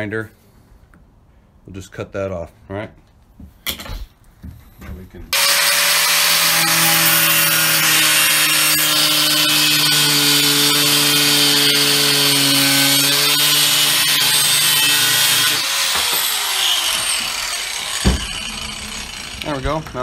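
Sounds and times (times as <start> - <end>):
angle grinder cutting metal: 5.3 - 20.0.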